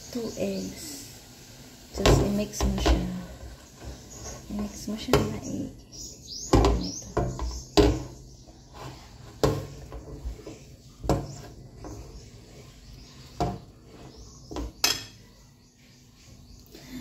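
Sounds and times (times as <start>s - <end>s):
whisk scraping and churning batter: 8.4s - 14.8s.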